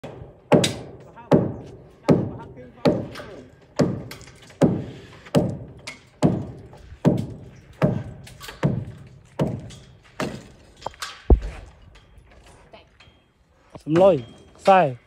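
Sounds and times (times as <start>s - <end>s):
heavy low thud: 11.3s - 11.8s.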